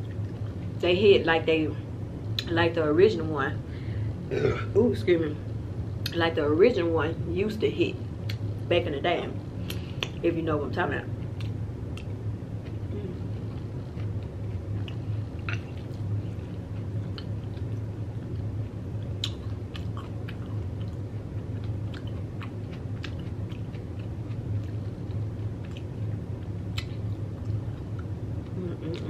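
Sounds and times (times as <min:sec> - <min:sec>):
low steady hum: 0:00.0 - 0:29.0
close-up chewing and mouth sounds: 0:11.2 - 0:29.0.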